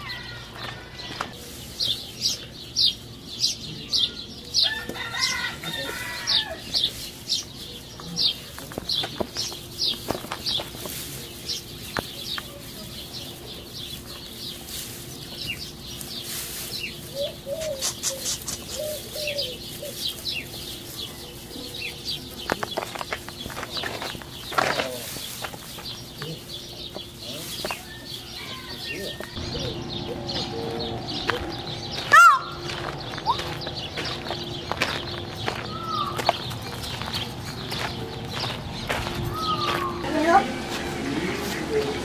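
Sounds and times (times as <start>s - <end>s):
birds chirping: 0.0s - 42.0s
chicken call: 32.0s - 33.6s.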